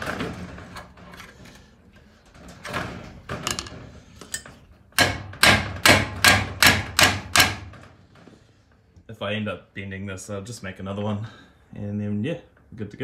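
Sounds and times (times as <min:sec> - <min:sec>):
hammer striking metal: 0:05.0 - 0:07.7.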